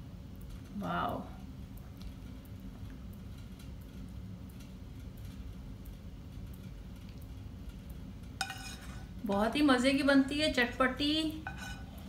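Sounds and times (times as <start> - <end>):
spatula scraping a ceramic bowl: 8.4 - 9.1, 11.4 - 11.9.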